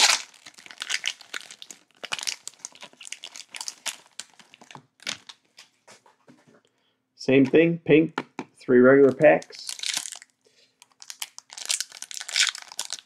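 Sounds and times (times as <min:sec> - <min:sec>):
cellophane wrapper crinkling and tearing: 0:00.0 - 0:05.7, 0:09.1 - 0:13.0.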